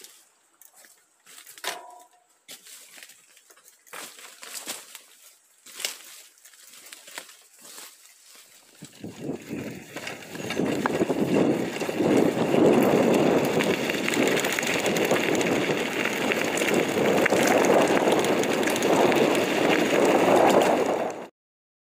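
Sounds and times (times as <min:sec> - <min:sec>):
tyres on dirt: 0:00.0 - 0:21.3
bike clicks and rattles: 0:06.7 - 0:21.3
wind on microphone: 0:08.8 - 0:21.3.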